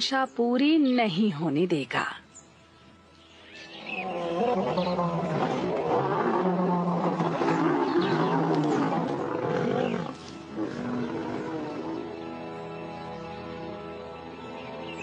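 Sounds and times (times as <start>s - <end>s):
lions fighting and roaring: 3.8s - 12.1s.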